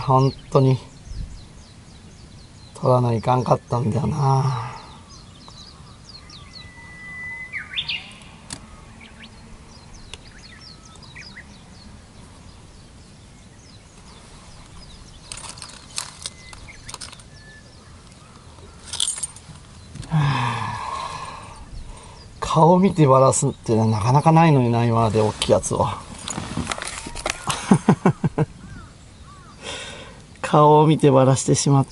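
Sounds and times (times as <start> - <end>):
small birds chirping: 0.0 - 31.9
whistled bird call: 4.9 - 9.4, 10.2 - 11.5
fishing tackle clicks: 15.3 - 17.3.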